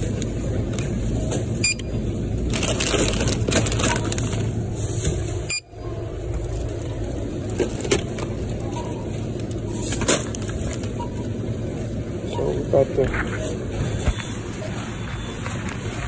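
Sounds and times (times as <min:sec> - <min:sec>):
low store hum: 0:00.0 - 0:16.0
plastic bags crinkling: 0:02.3 - 0:04.7.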